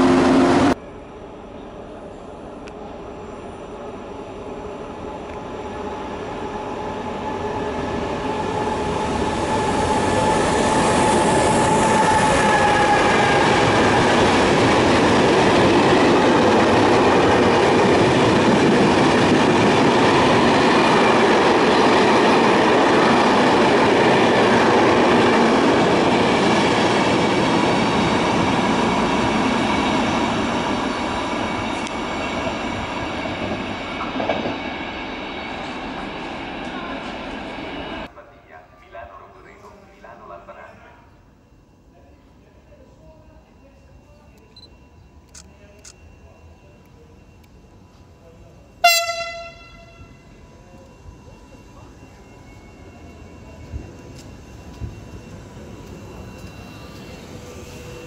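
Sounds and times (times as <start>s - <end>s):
train wheels clattering on rail: 31.3s - 34.8s.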